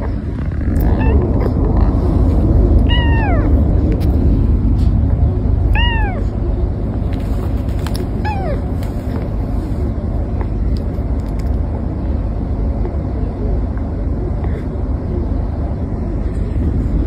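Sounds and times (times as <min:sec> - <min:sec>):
steady low rumble: 0:00.0 - 0:17.0
cat meowing: 0:00.8 - 0:01.5, 0:02.8 - 0:03.6, 0:05.7 - 0:06.4, 0:08.2 - 0:08.8.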